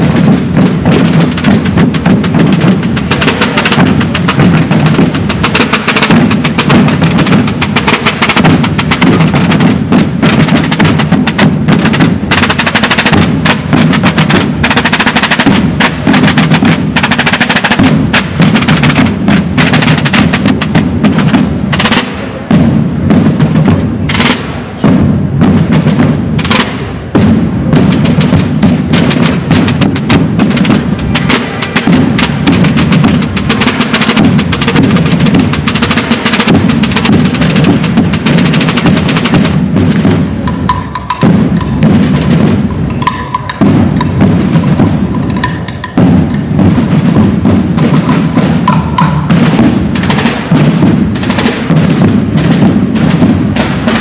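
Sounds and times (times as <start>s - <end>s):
deep bass drums: 0.0s - 5.5s
drum corps drumming: 0.0s - 54.0s.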